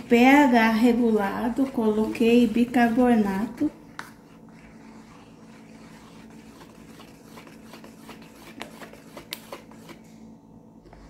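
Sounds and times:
stirring thick liquid soap: 0:00.0 - 0:10.1.

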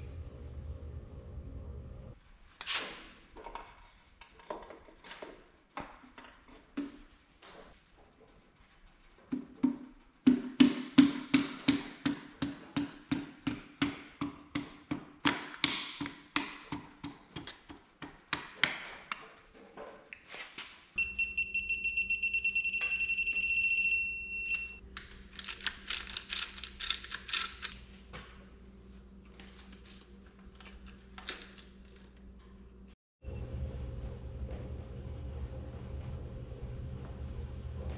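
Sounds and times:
low hum: 0:00.0 - 0:02.2, 0:21.0 - 0:37.9.

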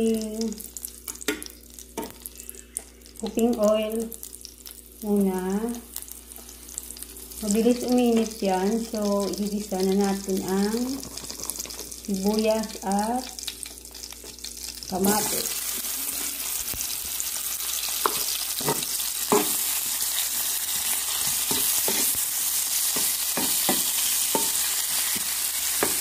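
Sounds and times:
vegetables sizzling in hot oil: 0:00.0 - 0:26.0
spatula scraping pan: 0:17.9 - 0:26.0.

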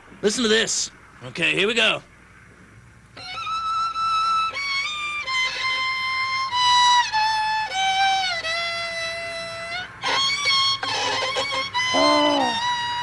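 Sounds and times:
solo violin slow melody: 0:03.2 - 0:13.0.

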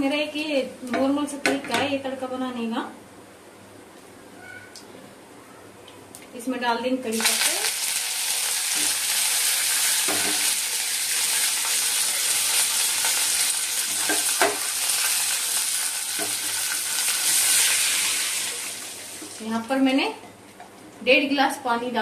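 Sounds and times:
spices sizzling in hot oil: 0:07.1 - 0:20.2.

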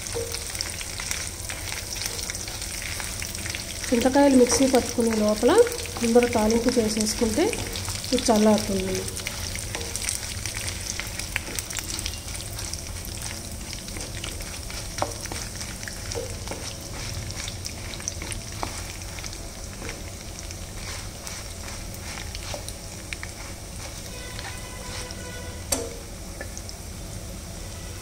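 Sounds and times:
wooden spatula stirring: 0:00.0 - 0:25.7
chillies sizzling in hot oil: 0:00.0 - 0:28.0.

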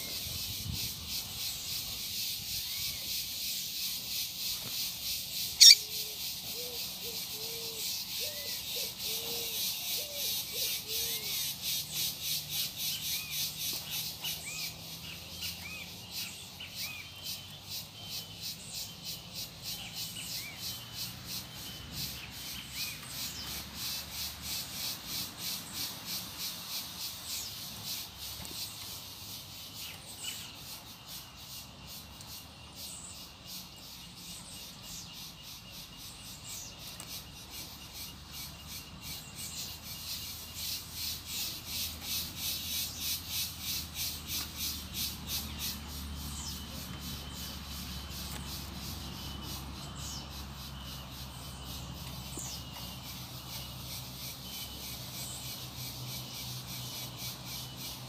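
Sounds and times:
insects shrilling: 0:05.0 - 0:06.0
high-pitched bird calls: 0:05.5 - 0:12.2.

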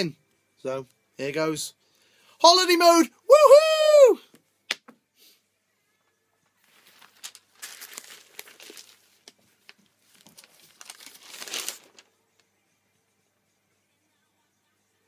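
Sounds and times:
newspaper pages rustling: 0:06.6 - 0:12.2.

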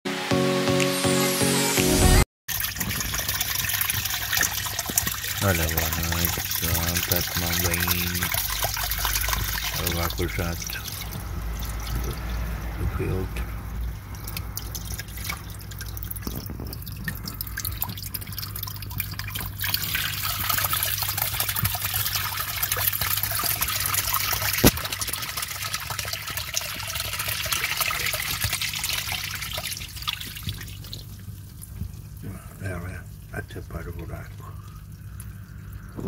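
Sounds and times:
water jet splashing: 0:02.5 - 0:31.2
steady low hum: 0:05.2 - 0:21.6, 0:28.4 - 0:36.0.

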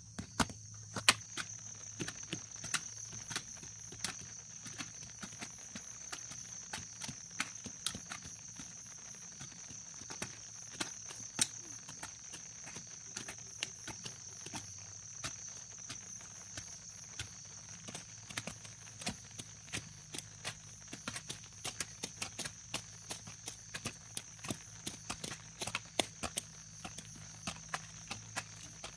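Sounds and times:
high-pitched insect drone: 0:00.0 - 0:28.9
hand hoe chopping into soil: 0:00.2 - 0:08.4.

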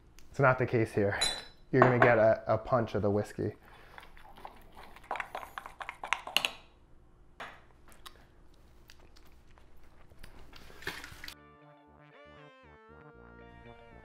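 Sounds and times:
metal spoon clinking against glass: 0:01.2 - 0:01.6.

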